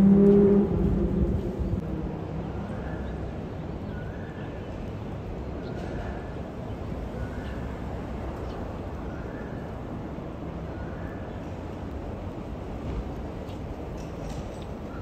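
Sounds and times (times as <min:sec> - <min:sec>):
low outdoor rumble: 0:00.0 - 0:03.9.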